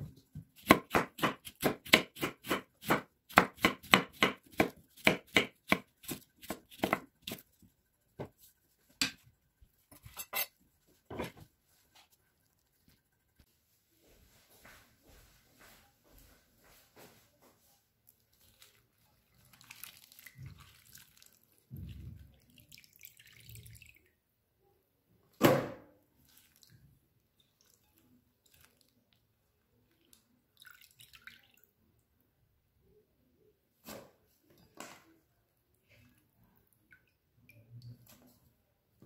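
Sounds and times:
water splashing and dripping: 19.4 - 24.1, 29.9 - 31.7.

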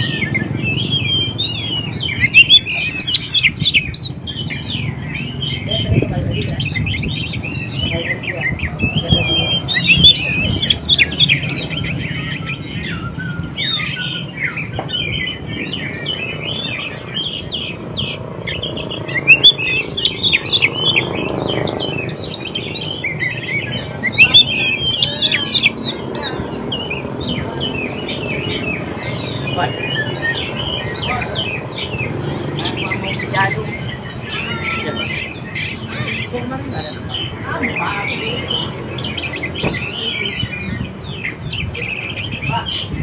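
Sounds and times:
bird singing whistled song: 0.0 - 5.7, 6.5 - 32.2.

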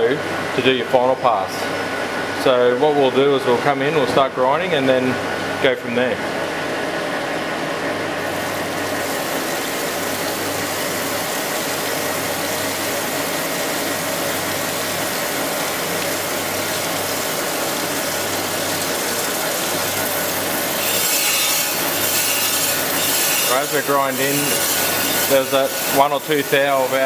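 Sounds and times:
machine low hum: 0.0 - 27.0
coolant hiss: 8.2 - 27.0
grinding wheel on steel: 17.0 - 27.0.

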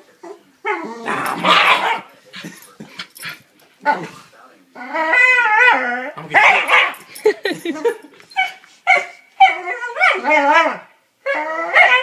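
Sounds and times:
dog barking and howling: 4.8 - 7.0, 8.4 - 12.0.

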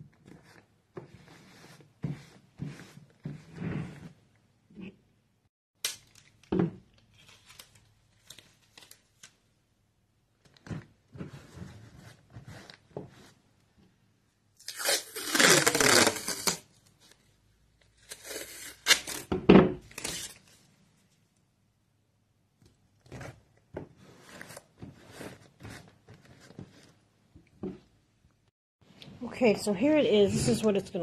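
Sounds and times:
masking tape tearing: 14.6 - 16.7, 18.0 - 19.3.

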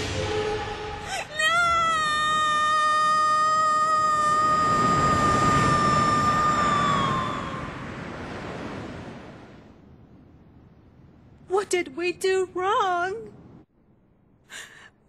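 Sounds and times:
rushing noise: 0.0 - 2.7
long high tone: 0.0 - 7.8.

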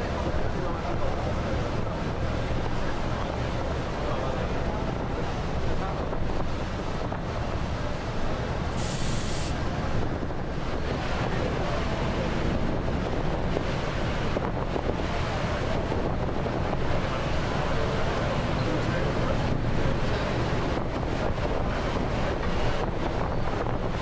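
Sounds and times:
ship propeller wash rumble: 0.0 - 24.0
wind buffeting microphone: 0.0 - 24.0
short hiss: 8.8 - 9.6.

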